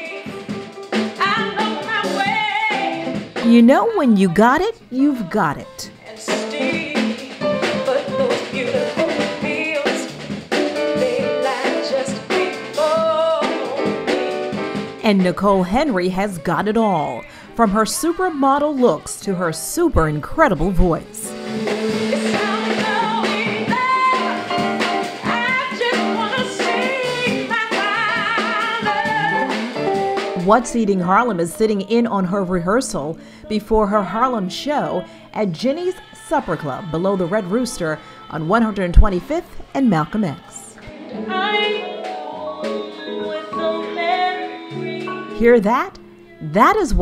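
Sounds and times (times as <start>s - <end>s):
small band with guitar: 0.0s - 16.7s, 20.1s - 31.9s, 40.4s - 47.0s
drum kit: 0.0s - 19.0s, 19.7s - 32.2s
woman singing jazz: 0.0s - 47.0s
upright bass: 3.4s - 5.9s, 15.0s - 21.3s, 28.9s - 34.8s, 45.4s - 47.0s
piano: 5.8s - 15.4s, 21.3s - 31.4s, 40.7s - 46.5s.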